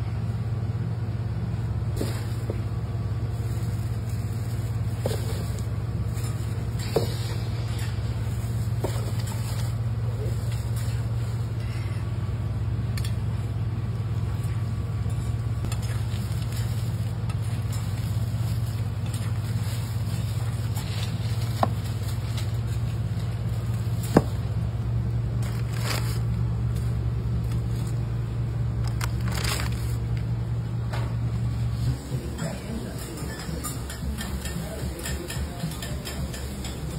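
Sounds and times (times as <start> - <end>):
low kitchen hum: 0.0 - 36.9.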